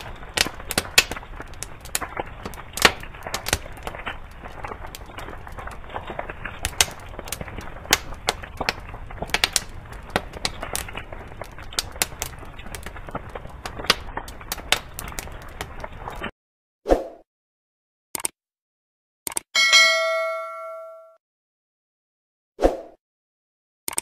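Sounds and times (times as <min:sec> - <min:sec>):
fire crackling and popping: 0:00.0 - 0:16.3.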